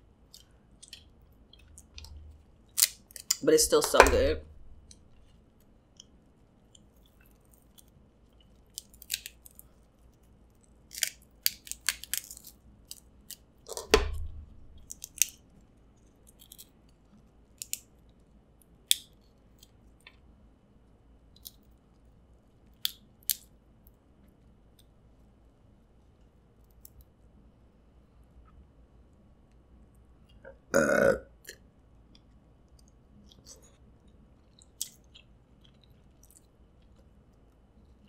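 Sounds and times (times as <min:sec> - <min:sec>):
crab shell cracking: 0:00.3 - 0:20.2, 0:21.3 - 0:21.7, 0:22.7 - 0:23.5, 0:32.7 - 0:37.0.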